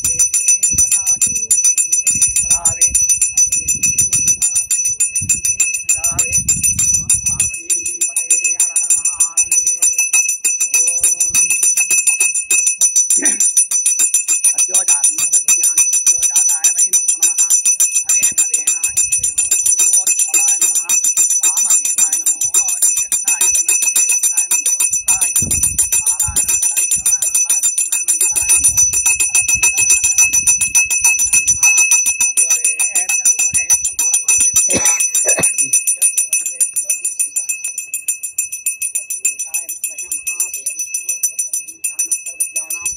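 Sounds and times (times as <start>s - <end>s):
hand bell ringing rapidly: 0.0s - 42.9s.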